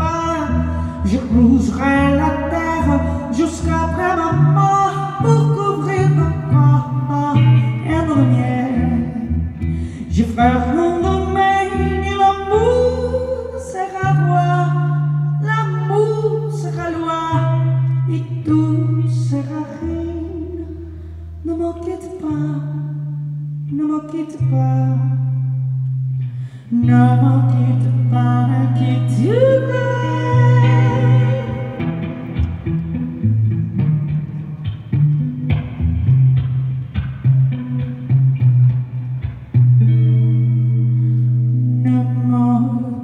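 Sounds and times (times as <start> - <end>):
woman singing: 0.0 - 25.7, 26.6 - 32.0, 40.8 - 43.0
electric guitar: 0.0 - 43.0.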